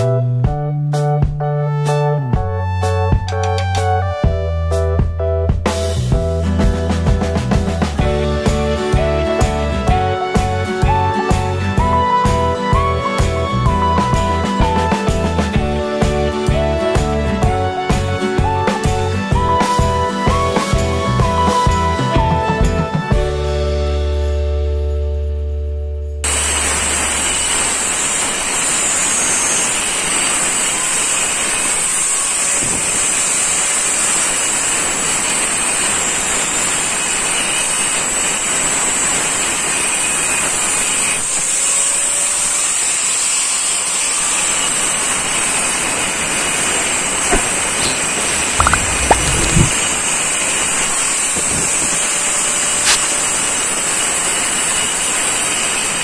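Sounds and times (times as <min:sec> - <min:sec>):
angle grinder cutting stone: 0:42.7 - 0:56.0.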